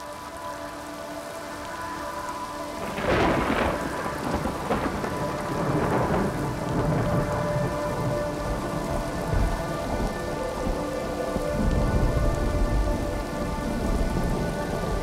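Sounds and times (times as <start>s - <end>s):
steady rain: 0.0s - 15.0s
thunder: 2.8s - 9.6s.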